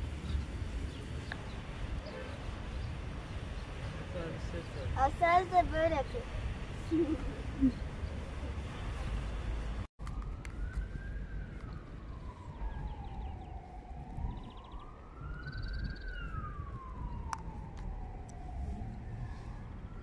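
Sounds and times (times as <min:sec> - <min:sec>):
siren wailing: 0:10.0 - 0:20.0.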